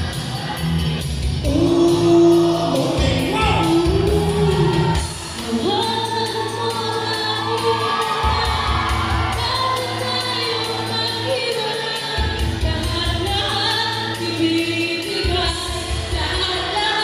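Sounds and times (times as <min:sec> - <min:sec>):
song over loudspeakers: 0:00.0 - 0:17.0
drum beat: 0:02.7 - 0:05.2.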